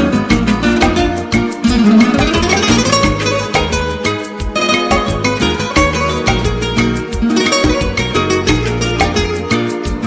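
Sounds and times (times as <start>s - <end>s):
plucked strings melody: 0.0s - 10.0s
steady beat: 0.0s - 10.0s.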